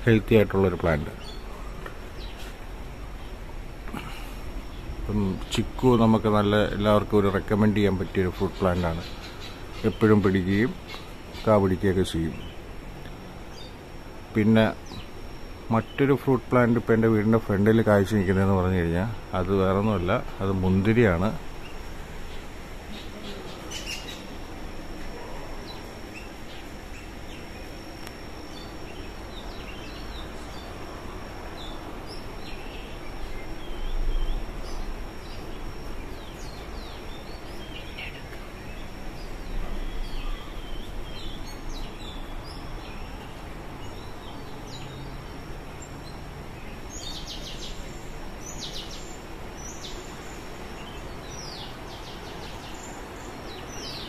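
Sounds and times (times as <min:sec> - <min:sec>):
birds chirping: 0:00.0 - 0:54.0
steady background hiss: 0:00.0 - 0:54.0.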